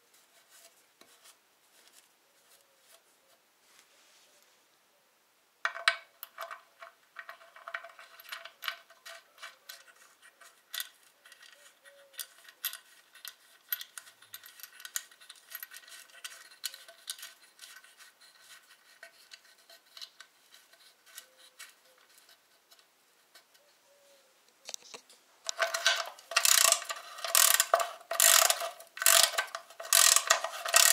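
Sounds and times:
metal plug clicking and scraping: 0:05.7 - 0:23.7, 0:24.7 - 0:30.9.

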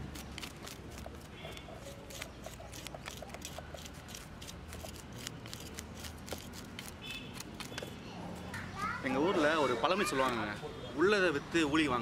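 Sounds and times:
knife scraping fish scales: 0:00.0 - 0:08.0.

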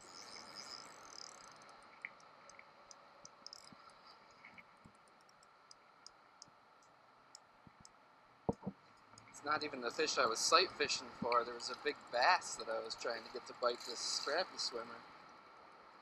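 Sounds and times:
light ticks: 0:00.6 - 0:09.5.

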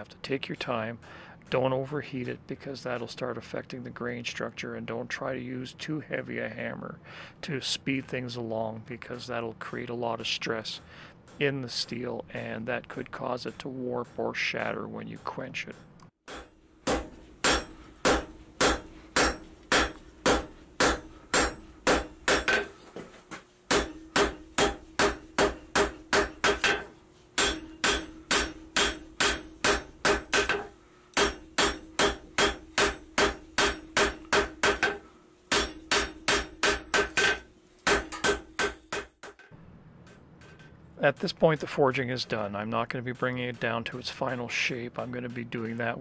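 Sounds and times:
hammer striking metal on anvil: 0:12.4 - 0:22.7, 0:23.7 - 0:39.5.

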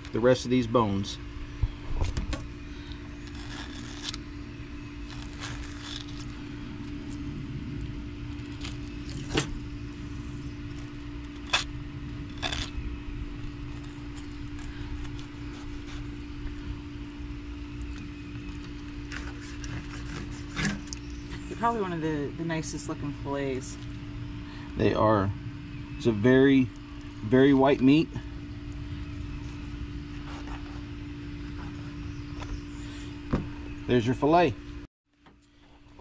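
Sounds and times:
steady low hum: 0:00.0 - 0:36.0
fillet knife scraping along backbone: 0:13.7 - 0:16.3, 0:19.0 - 0:21.0, 0:30.1 - 0:30.9.

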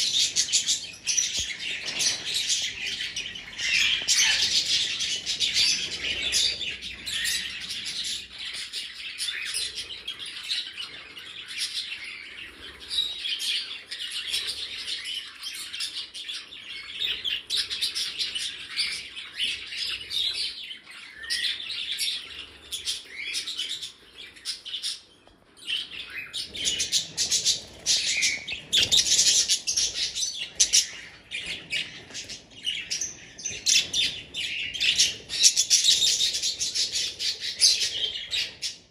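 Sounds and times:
budgerigars chattering and chirping: 0:00.0 - 0:38.9.

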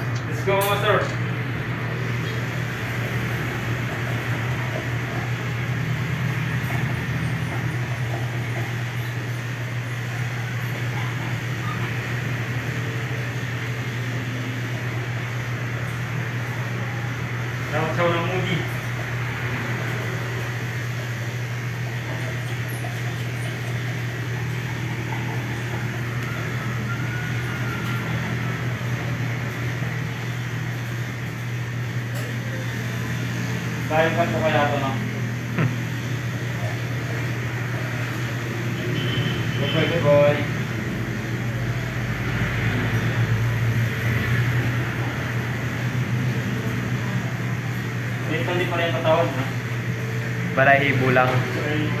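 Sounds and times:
electric clipper humming: 0:35.1 - 0:36.0.

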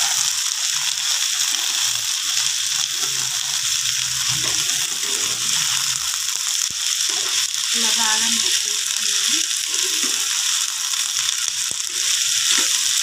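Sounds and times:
eggplant sizzling in oil: 0:00.0 - 0:13.0
spoon stirring in pan: 0:08.4 - 0:10.4.

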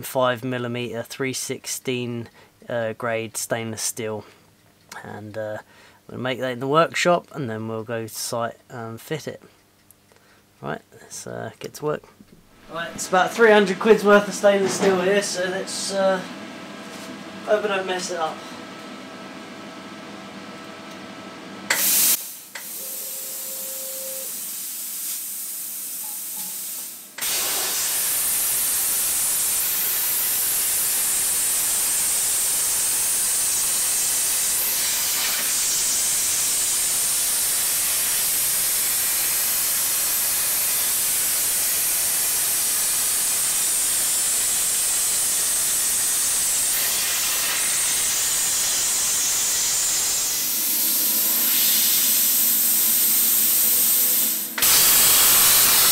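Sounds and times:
plasma cutter torch hissing: 0:21.7 - 0:55.9.

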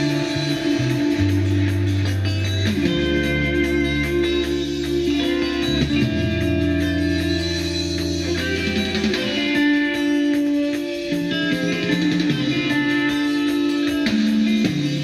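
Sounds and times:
low bass line: 0:00.0 - 0:09.4
guitar music from vinyl record: 0:00.0 - 0:15.0.

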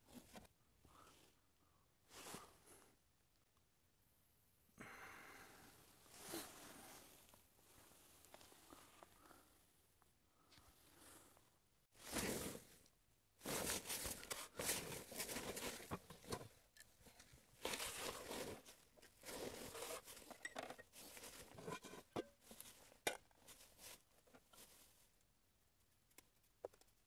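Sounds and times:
crunching and scraping: 0:12.0 - 0:25.1.

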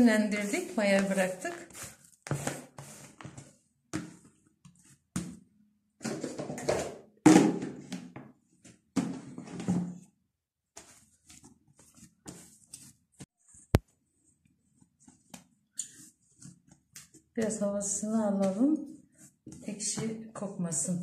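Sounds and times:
hands kneading dough: 0:00.0 - 0:05.6, 0:10.7 - 0:20.4
plastic bowl thuds and rustles: 0:05.2 - 0:08.3, 0:08.9 - 0:10.1.

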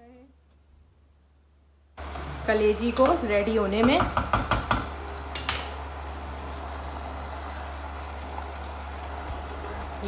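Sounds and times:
low kitchen hum: 0:00.0 - 0:10.0.

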